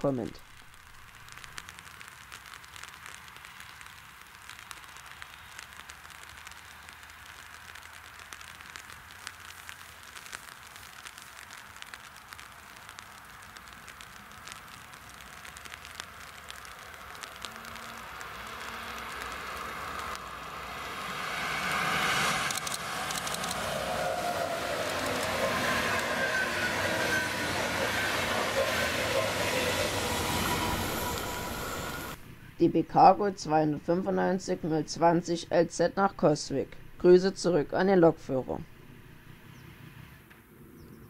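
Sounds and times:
crackling pattering hiss: 0.0s - 41.0s
electric train approaching: 16.6s - 32.6s.

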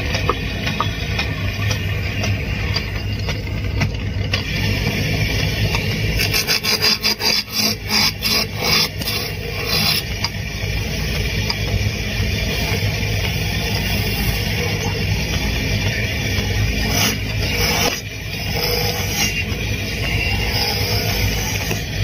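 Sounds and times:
chisel cutting spinning wood: 0.0s - 22.0s
wood lathe humming: 4.4s - 22.0s.

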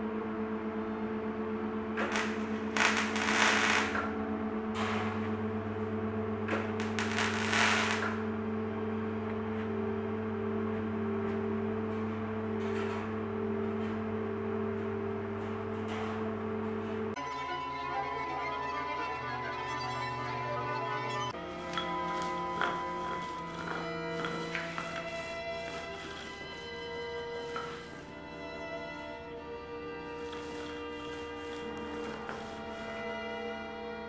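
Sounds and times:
background music tones: 0.0s - 34.0s
welder arc crackling: 2.0s - 4.1s, 6.5s - 8.3s, 21.5s - 28.2s.

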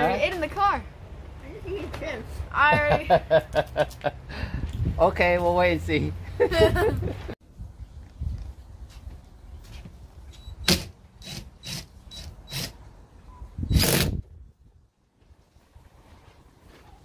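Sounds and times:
cordless drill bursts: 10.6s - 12.8s.

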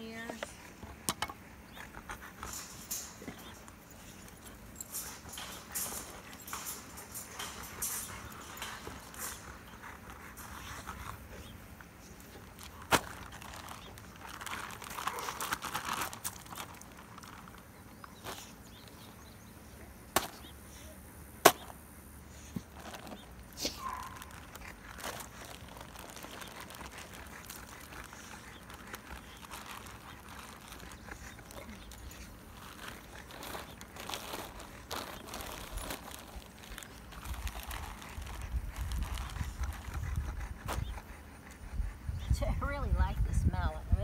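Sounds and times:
plastic bags rustling: 2.2s - 18.9s, 22.3s - 40.1s.

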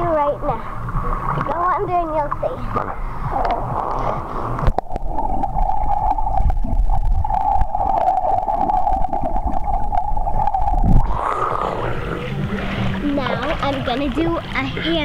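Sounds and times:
muffled underwater hum: 0.0s - 15.0s
bubbles from breathing out: 2.9s - 13.5s.

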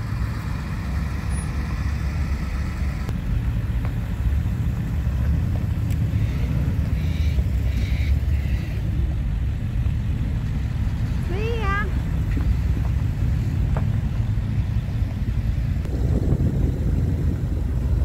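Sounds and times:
pickup trucks driving on gravel: 0.0s - 18.0s.

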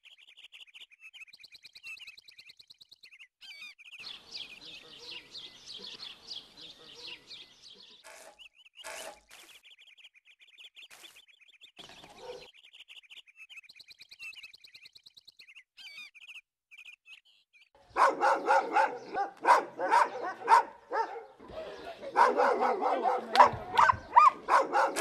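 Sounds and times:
small birds chirping: 0.0s - 25.0s
dog barking loudly: 12.1s - 12.5s, 17.9s - 21.4s, 22.0s - 25.0s.

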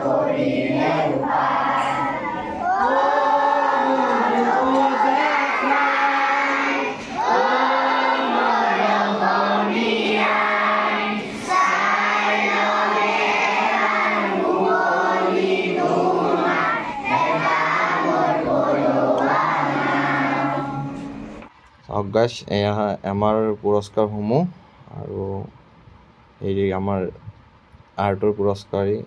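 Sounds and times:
children and women singing in unison: 0.0s - 21.5s.

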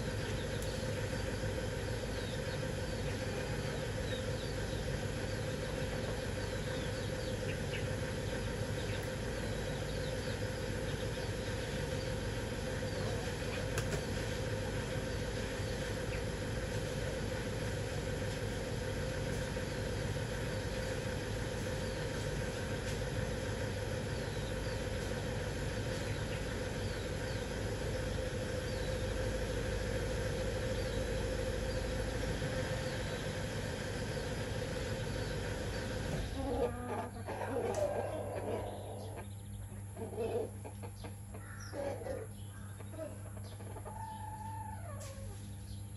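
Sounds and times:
engine-like drone: 0.0s - 45.9s
chicks peeping: 2.1s - 12.2s, 24.1s - 25.2s, 34.0s - 45.9s.

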